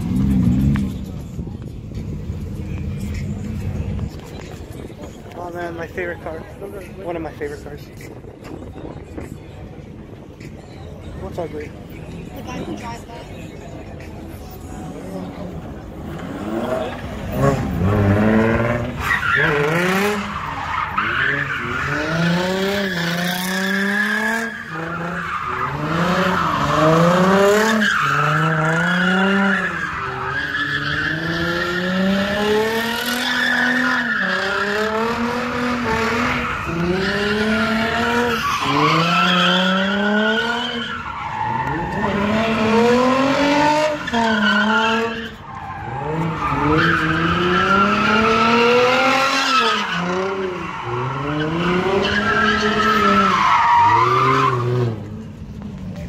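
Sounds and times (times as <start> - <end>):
tyres squealing on asphalt: 13.3 - 55.5.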